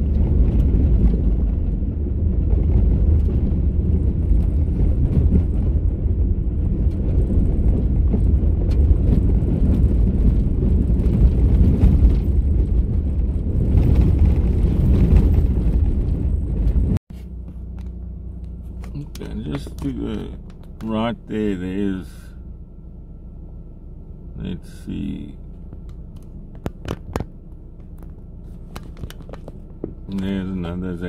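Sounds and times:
tyres rumbling on gravel: 0.0s - 22.6s, 24.2s - 31.0s
quiet hum: 17.2s - 31.0s.

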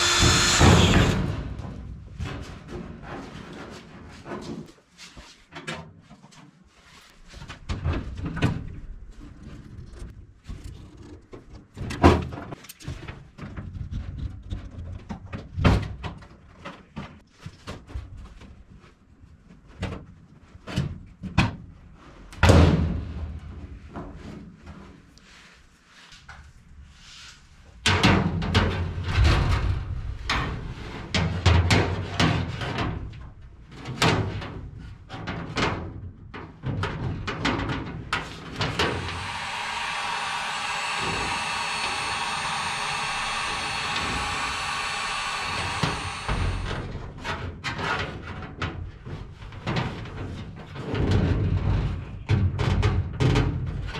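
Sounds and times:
heat gun running: 0.0s - 1.3s, 38.6s - 46.9s.

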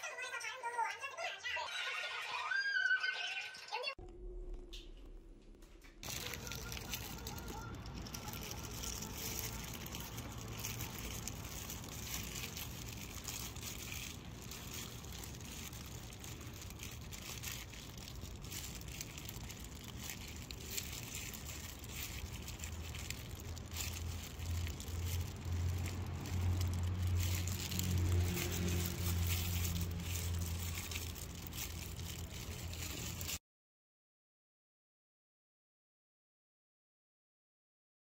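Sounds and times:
plastic glove and pouch crinkling: 6.0s - 33.4s.

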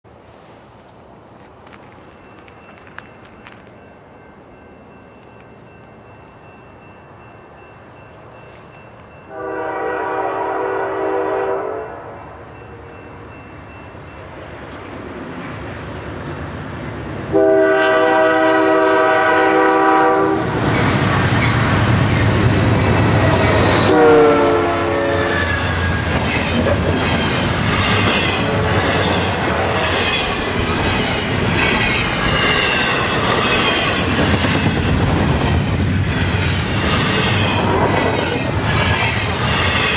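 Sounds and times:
freight train roaring past: 0.1s - 39.9s
locomotive horn: 9.3s - 12.4s, 17.3s - 20.6s, 23.3s - 26.2s, 27.6s - 30.0s.

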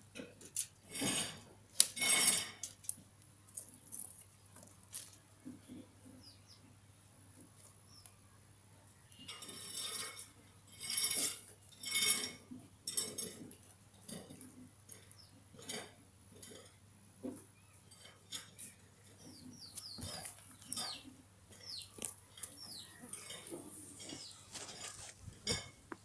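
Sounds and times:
sticks rustling and scraping on trap: 0.6s - 3.0s, 19.8s - 25.8s
small birds chirping: 3.5s - 10.0s, 14.8s - 15.8s, 17.2s - 25.0s.

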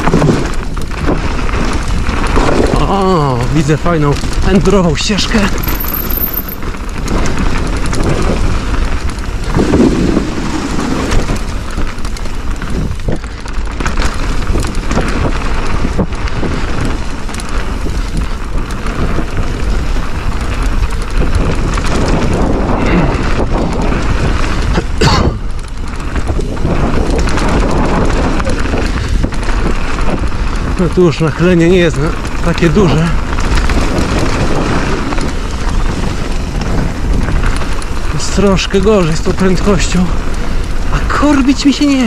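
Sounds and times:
bike clicks and rattles: 0.0s - 42.0s
wind and tyres rumbling: 0.0s - 42.0s.

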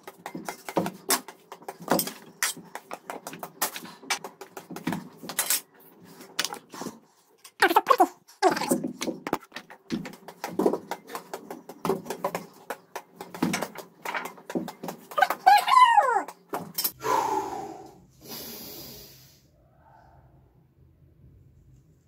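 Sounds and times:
racket tapping paper ball: 0.0s - 5.4s, 8.9s - 15.5s
short hiss: 18.2s - 19.4s.

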